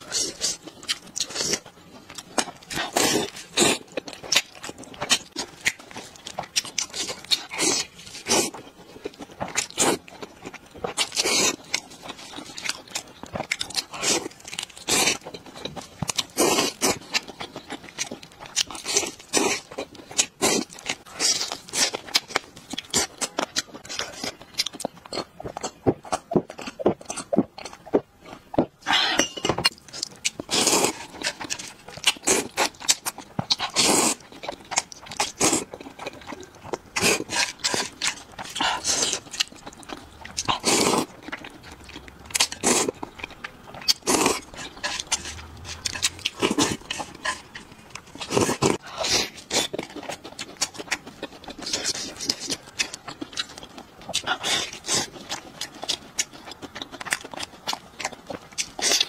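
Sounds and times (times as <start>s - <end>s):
chewing: 0.0s - 59.0s.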